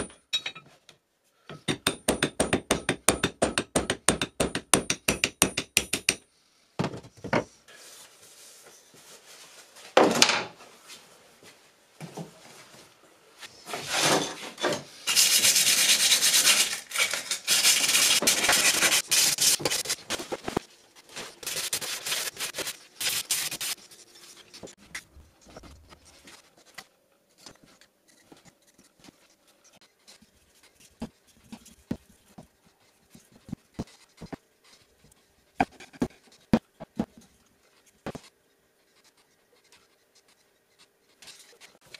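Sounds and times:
steel scraping on sandpaper: 15.0 - 20.0.

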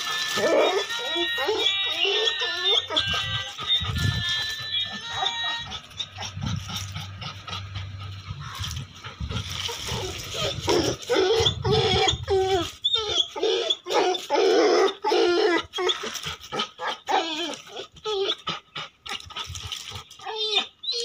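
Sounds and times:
dog whining and yipping: 0.0 - 21.0
low rumble: 5.6 - 12.8.

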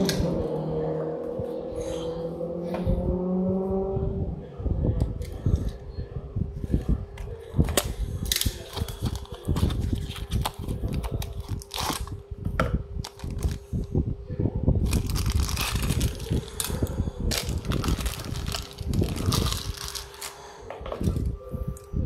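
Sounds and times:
steady low hum: 0.0 - 22.0
toy packaging rustling and crinkling: 7.8 - 12.1, 13.0 - 13.7, 14.8 - 21.2
plastic bag crackles: 13.0 - 13.7, 14.8 - 21.2.

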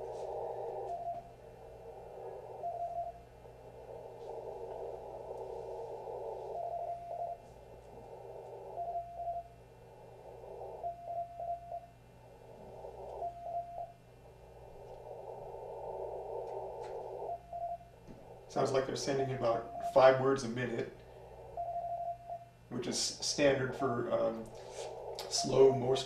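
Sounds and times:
receiver noise hiss: 0.0 - 26.0
morse code beeps: 0.6 - 1.3, 2.6 - 3.2, 6.4 - 7.4, 8.7 - 9.6, 10.8 - 11.9, 13.1 - 14.0, 17.2 - 17.9, 18.6 - 20.5, 21.5 - 22.5.

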